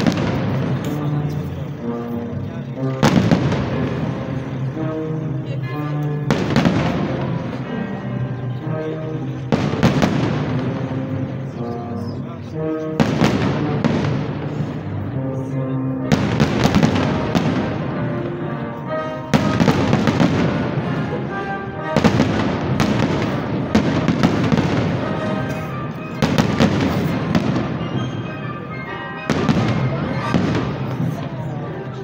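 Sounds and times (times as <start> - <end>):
heavy firework bangs: 3.0 - 4.7, 6.3 - 7.6, 9.4 - 11.1, 13.0 - 14.9, 16.1 - 18.1, 19.3 - 21.1, 22.0 - 28.1, 29.3 - 31.2.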